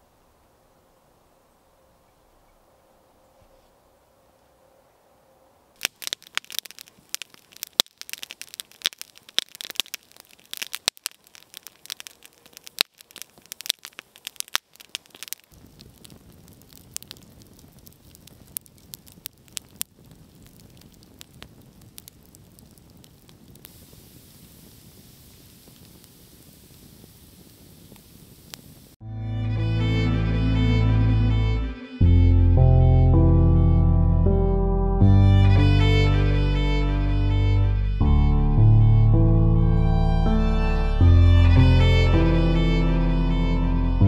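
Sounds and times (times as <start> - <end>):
sharp crackling and snapping: 5.8 - 29.0.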